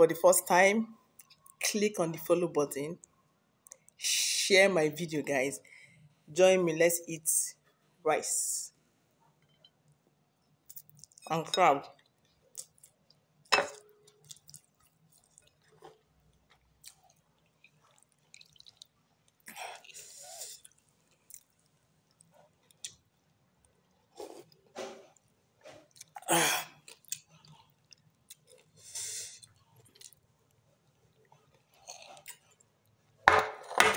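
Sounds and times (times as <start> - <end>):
wet chewing mouth noises: 14.2 - 23.1.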